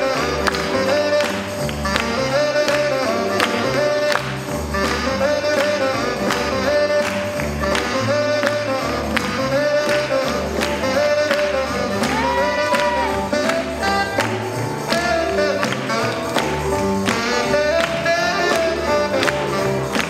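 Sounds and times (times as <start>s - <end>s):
up-tempo swing jazz: 0.0s - 20.0s.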